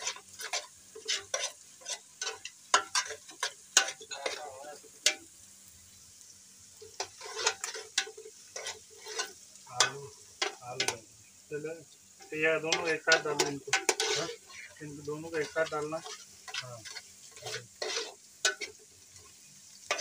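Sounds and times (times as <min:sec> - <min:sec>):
metal spoon scraping a pot: 0:00.0 - 0:05.3, 0:06.8 - 0:11.0, 0:12.2 - 0:20.0
faint sizzling: 0:00.0 - 0:20.0.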